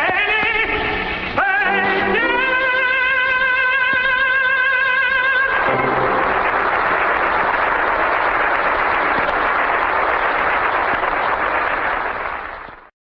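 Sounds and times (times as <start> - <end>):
audience applauding: 5.4 - 12.9.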